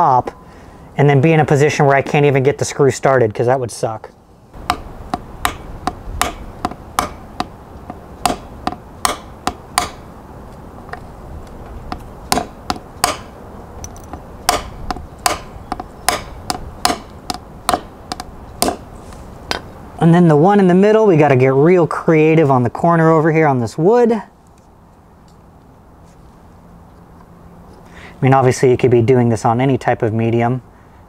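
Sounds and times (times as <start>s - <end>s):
hammer tapping: 4.6s - 10.0s, 11.9s - 18.8s.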